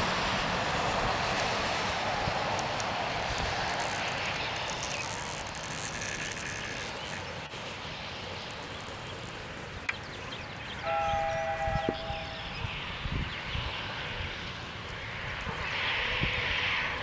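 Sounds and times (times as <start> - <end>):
distant engine drone: 0.0 - 17.0
faint bird chirps: 9.8 - 13.6
two-note tone: 10.8 - 12.6.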